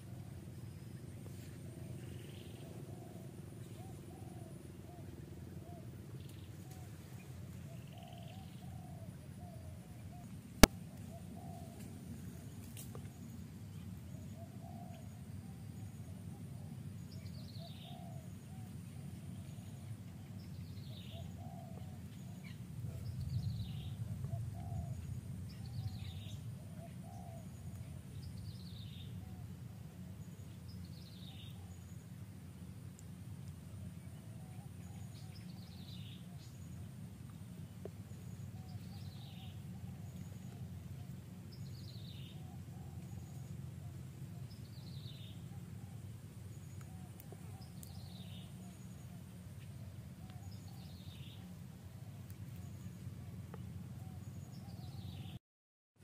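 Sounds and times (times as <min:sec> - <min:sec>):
bird calling: 0:02.0 - 0:12.0, 0:14.2 - 0:29.6, 0:38.2 - 0:53.1
steady low rumble: 0:17.2 - 0:55.0.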